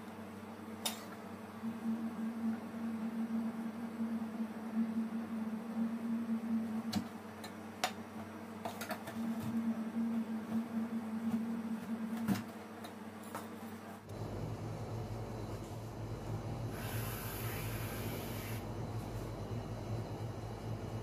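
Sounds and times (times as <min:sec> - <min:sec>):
steady hum: 0:00.0 - 0:21.0.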